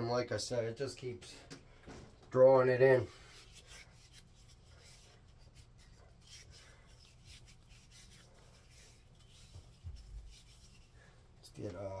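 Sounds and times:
hands rubbing wooden handle: 3.0 - 11.1.

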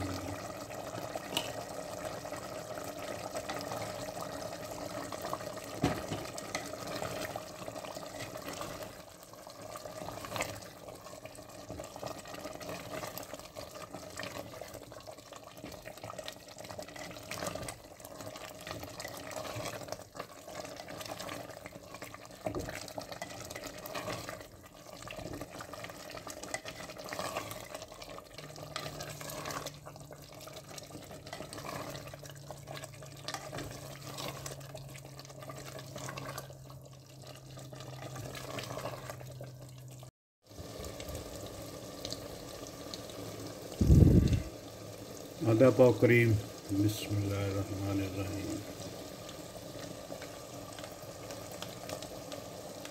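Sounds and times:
curry stirred with spatula: 0.7 - 40.0.

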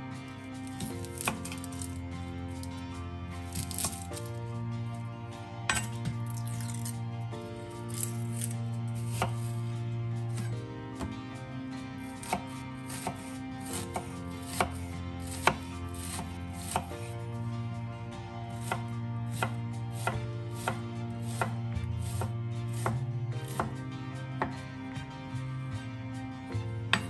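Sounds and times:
soft background music: 0.0 - 27.0
knife chopping on wooden board: 0.8 - 1.8, 3.5 - 4.1, 9.1 - 9.5, 12.2 - 17.0, 18.6 - 23.8.

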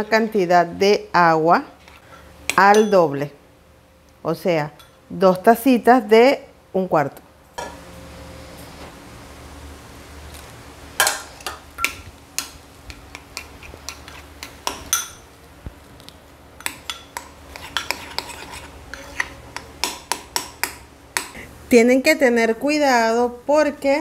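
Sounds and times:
metal spoon scraping ceramic bowl: 13.4 - 15.2, 16.6 - 19.7.

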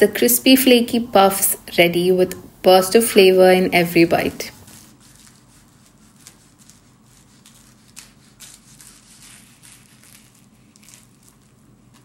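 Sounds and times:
knife crunching through pastry: 4.8 - 12.0.

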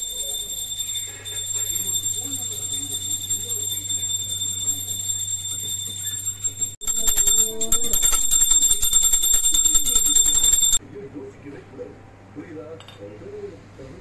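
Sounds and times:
hand bell ringing rapidly: 0.0 - 10.8.

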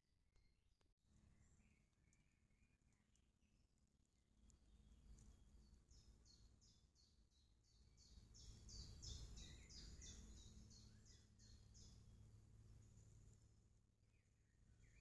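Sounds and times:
small bird chirping: 4.5 - 12.0.

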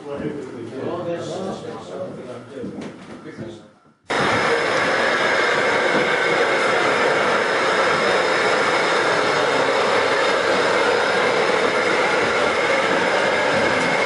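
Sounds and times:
model train motor whirring: 4.1 - 14.0
wheels running on rail: 4.1 - 14.0.

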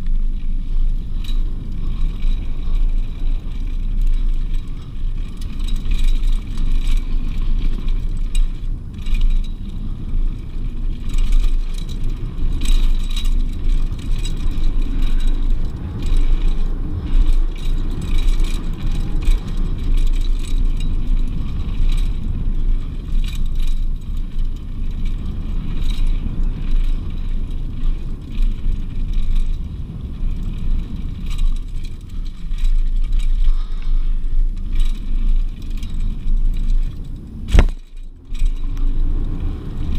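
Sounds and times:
bike chain and parts rattling: 0.0 - 39.9
wind on microphone: 0.0 - 39.9
tyre rumble on dirt: 29.6 - 39.9.

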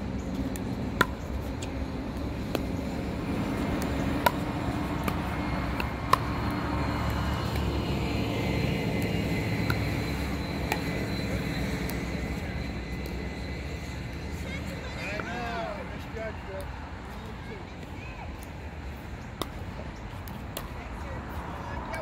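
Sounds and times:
paddles hitting plastic ball: 2.4 - 2.8, 3.6 - 6.6.

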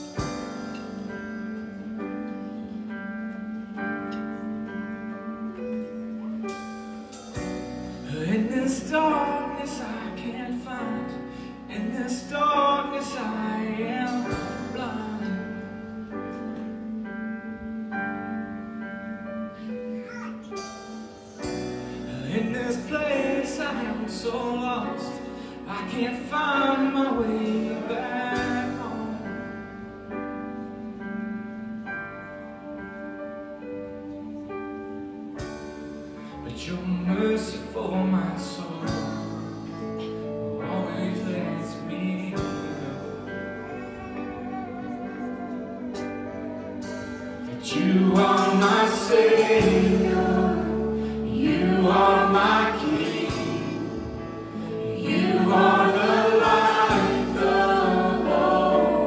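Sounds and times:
bass: 0.0 - 59.0
keyboard: 0.0 - 59.0
person singing: 8.0 - 16.8, 22.0 - 30.0, 36.2 - 59.0.

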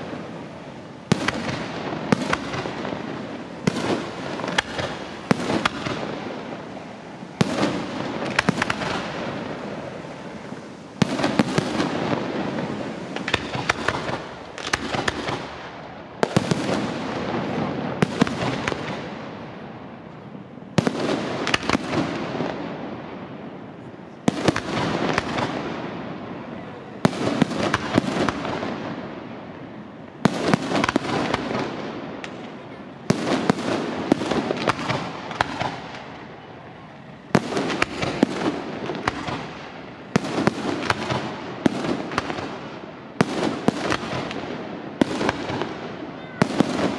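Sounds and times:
firework crackle: 0.0 - 46.9.

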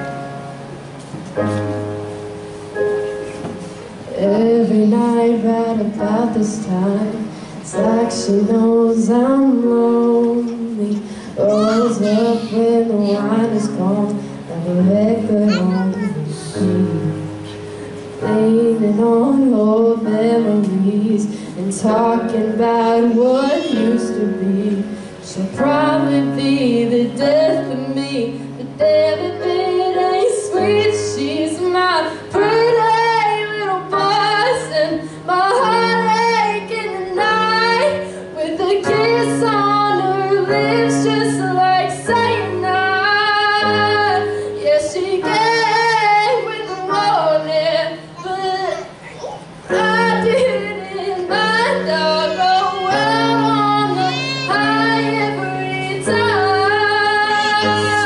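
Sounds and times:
woman singing with vibrato: 4.1 - 17.5, 18.2 - 49.0, 49.7 - 58.0.

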